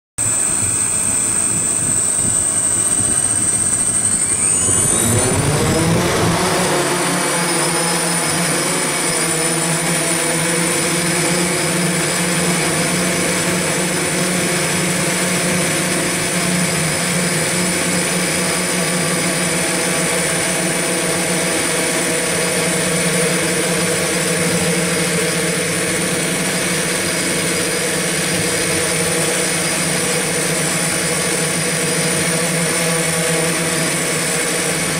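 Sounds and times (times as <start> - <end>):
multicopter propellers buzzing: 0.2 - 34.9.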